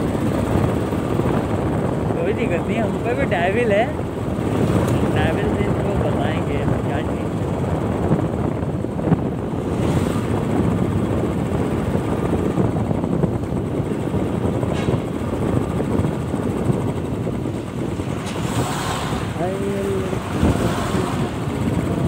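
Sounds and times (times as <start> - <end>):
motorcycle engine running: 0.0 - 22.0
wind rushing on microphone: 0.0 - 22.0.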